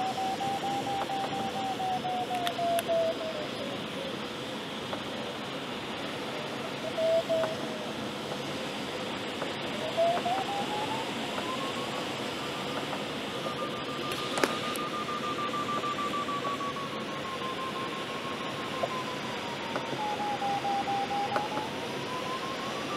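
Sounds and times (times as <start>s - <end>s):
variometer tone sliding in pitch: 0.0s - 3.6s, 6.7s - 7.7s, 9.7s - 22.9s
airflow rushing on canopy: 3.6s - 15.4s.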